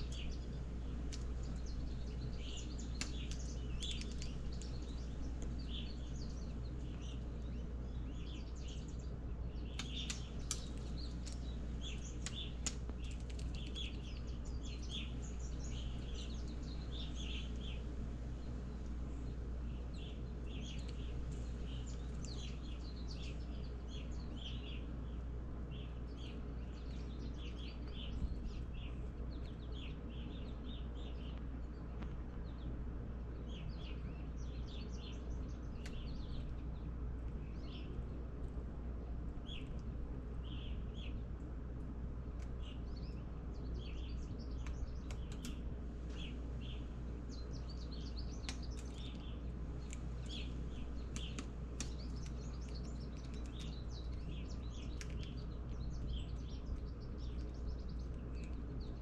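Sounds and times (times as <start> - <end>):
songbirds chirping: 0.0 - 59.0
steady low hum: 0.0 - 59.0
woodpecker pecking taps: 2.9 - 4.8, 9.7 - 14.0, 48.4 - 55.4.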